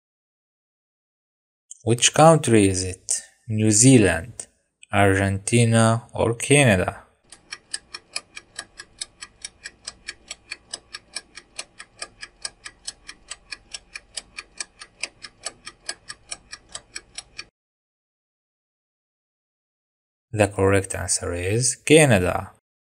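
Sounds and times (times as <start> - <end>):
ticking clock: 7.2 - 17.5.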